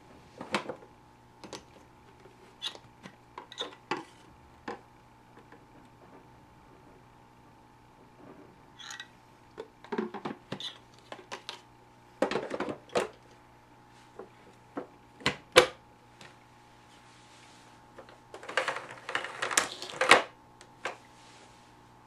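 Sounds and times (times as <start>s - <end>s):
plastic clatter: 8.8s - 11.6s, 12.2s - 13.2s, 18.0s - 21.0s.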